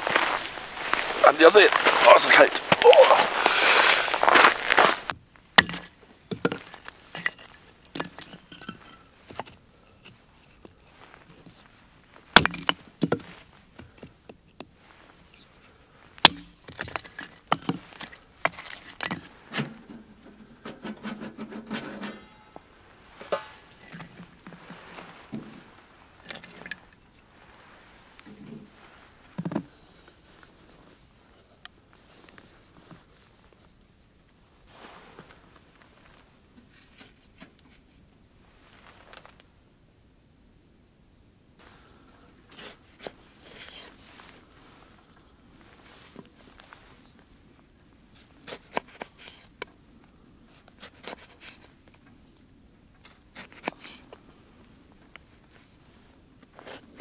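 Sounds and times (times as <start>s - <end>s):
kettle scraping snow: 0.0s - 5.1s, 16.9s - 33.8s, 34.7s - 39.3s, 42.4s - 44.9s.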